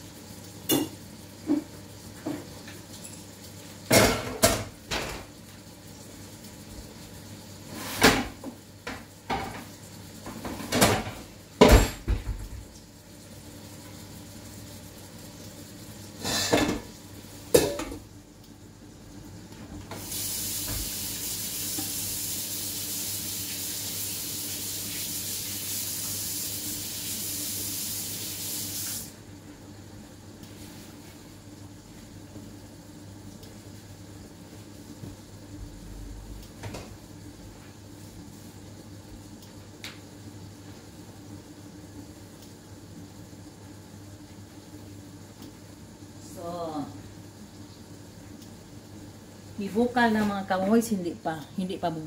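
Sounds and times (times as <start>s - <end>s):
pots and utensils clattering: 3.9s - 5.3s, 7.7s - 12.5s, 16.2s - 16.9s, 17.5s - 18.0s
tap running into sink: 19.8s - 22.0s.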